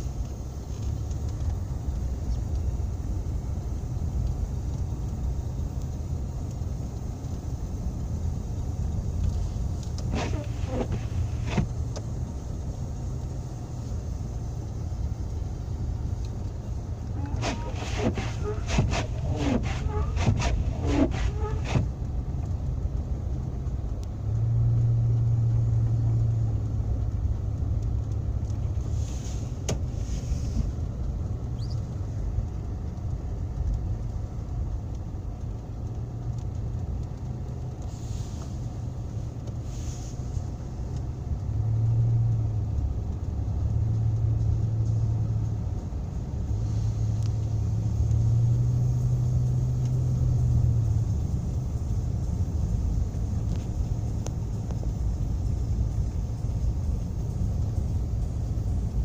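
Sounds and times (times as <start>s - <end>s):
car engine drone: 0.0s - 59.0s
tyre and road rumble: 8.6s - 13.1s, 14.6s - 37.9s.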